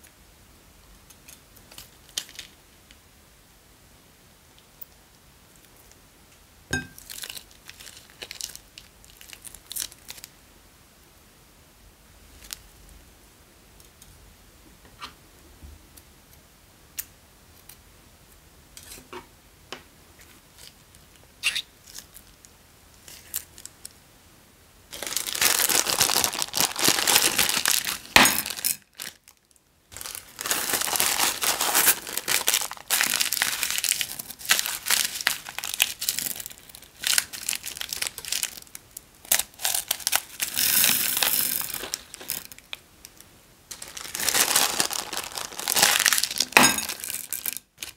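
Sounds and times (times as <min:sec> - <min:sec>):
plastic bag crinkling: 0:01.7 - 0:02.6, 0:07.0 - 0:10.3, 0:24.9 - 0:47.9.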